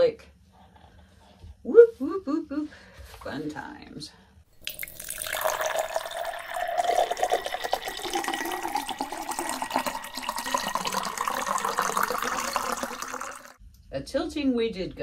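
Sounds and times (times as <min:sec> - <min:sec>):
thick paint pouring and splattering: 0:04.6 - 0:13.6.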